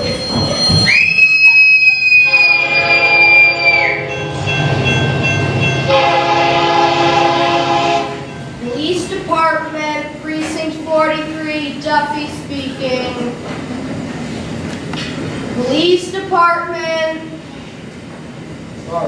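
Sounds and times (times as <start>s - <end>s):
passing train rumble: 0.0s - 19.0s
long high scream: 0.8s - 4.1s
train horn: 1.8s - 4.6s, 5.8s - 8.4s.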